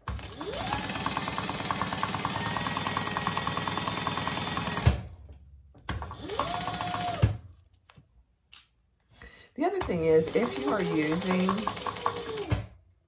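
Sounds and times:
sewing machine stitching: 0:00.0 - 0:05.1, 0:06.0 - 0:07.3, 0:10.1 - 0:12.8.

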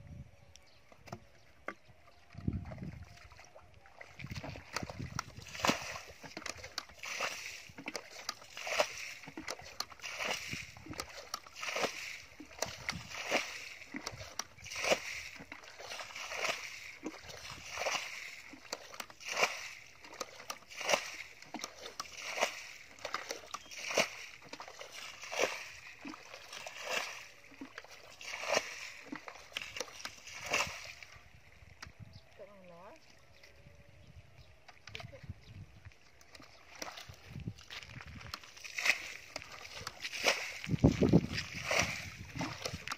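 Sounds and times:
bucket splashing muddy water: 0:02.5 - 0:31.7, 0:36.2 - 0:42.9.

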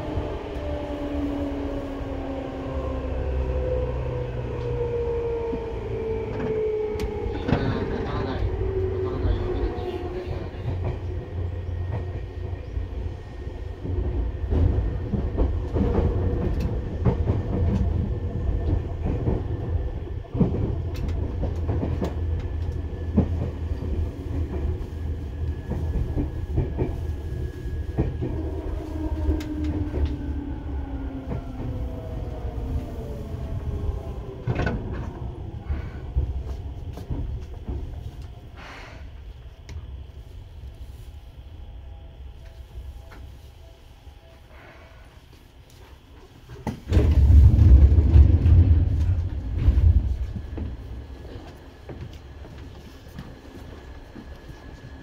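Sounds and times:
electric train rumbling: 0:00.0 - 0:55.0
train humming tones: 0:00.0 - 0:55.0.

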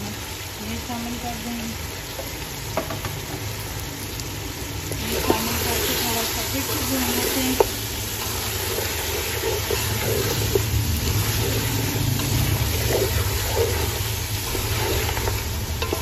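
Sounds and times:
meat sizzling in oil: 0:00.0 - 0:16.0
spoon scraping and knocking pot: 0:06.7 - 0:16.0.

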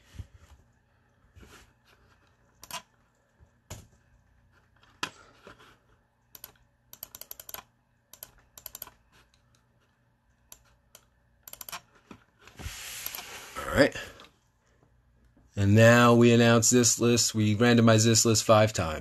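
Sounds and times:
laptop keyboard typing: 0:02.6 - 0:02.9, 0:06.3 - 0:09.5, 0:10.5 - 0:12.0.

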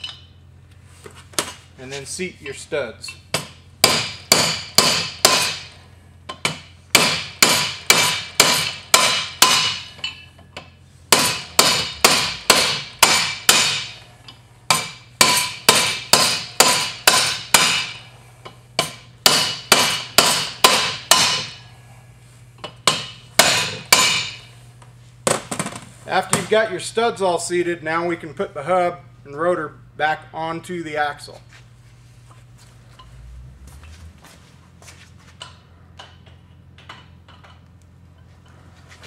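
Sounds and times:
hammer striking steel punch: 0:03.3 - 0:10.2, 0:11.1 - 0:14.0, 0:14.7 - 0:18.1, 0:18.8 - 0:21.6, 0:22.6 - 0:24.5.

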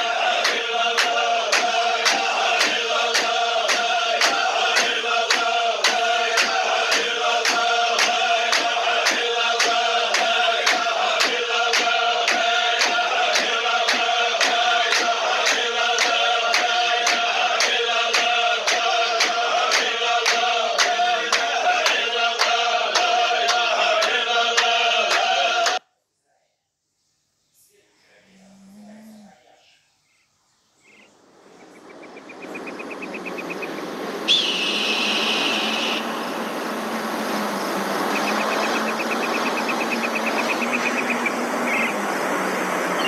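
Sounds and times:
men chanting in unison: 0:00.0 - 0:25.8.

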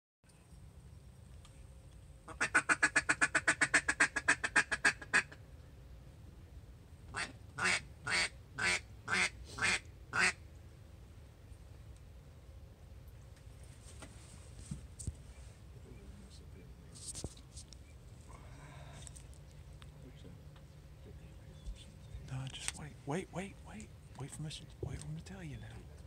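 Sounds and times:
duck quacking: 0:02.3 - 0:05.4, 0:07.2 - 0:10.4.

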